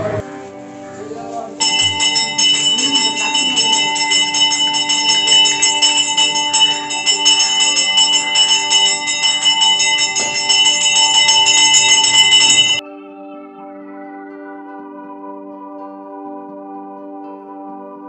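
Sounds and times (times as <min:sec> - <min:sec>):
temple bells ringing rapidly: 0:01.6 - 0:12.8.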